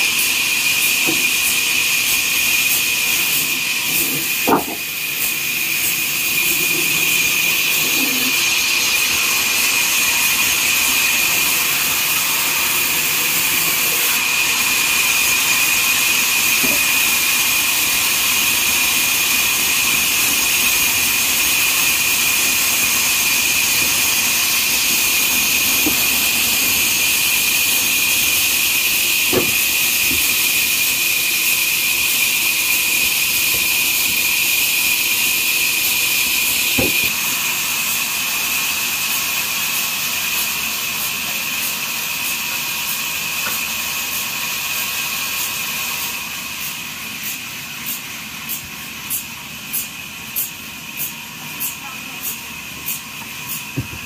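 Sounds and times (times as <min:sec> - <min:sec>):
band saw whining hiss: 0:00.0 - 0:54.0
wooden plank knocks: 0:01.0 - 0:01.2, 0:04.1 - 0:04.9, 0:29.3 - 0:29.6, 0:36.8 - 0:37.1, 0:53.8 - 0:54.0.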